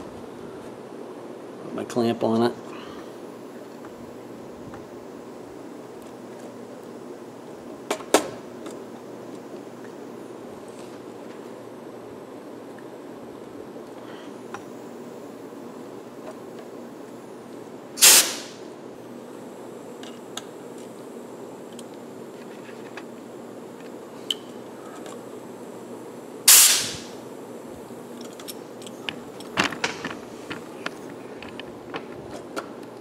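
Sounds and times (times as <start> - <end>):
rivet gun air hisses: 18.0 - 18.6, 26.5 - 27.2.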